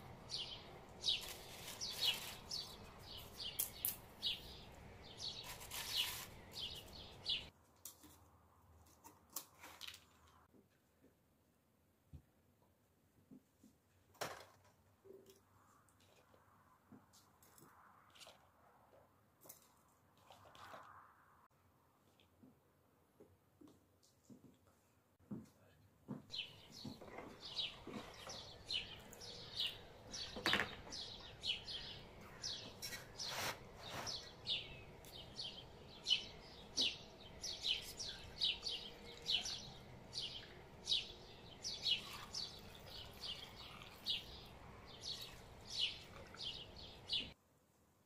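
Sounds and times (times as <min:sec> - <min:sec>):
bird chirping: 0:00.2 - 0:07.5, 0:26.3 - 0:47.4.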